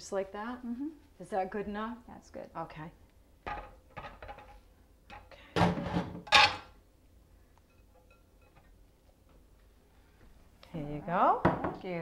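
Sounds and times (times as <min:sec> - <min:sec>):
colander and bowl clattering: 0:03.4 - 0:06.8.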